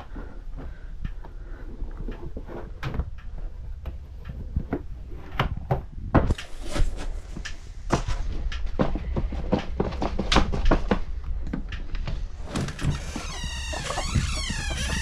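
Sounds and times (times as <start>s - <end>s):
knocks scuffs and rustles: 4.5s - 13.2s.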